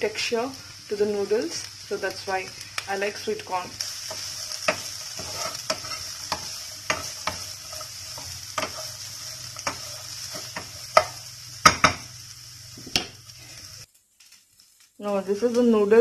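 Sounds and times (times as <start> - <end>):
vegetables sizzling in oil: 0.0 - 16.0
spatula knocking against pan: 11.0 - 12.0.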